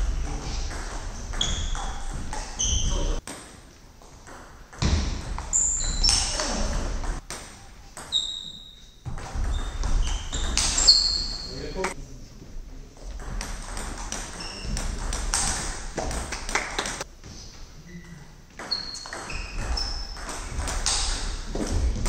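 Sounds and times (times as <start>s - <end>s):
shoes squeaking on floor: 0.0s - 3.2s, 5.2s - 12.0s, 13.9s - 16.0s, 17.0s - 22.0s.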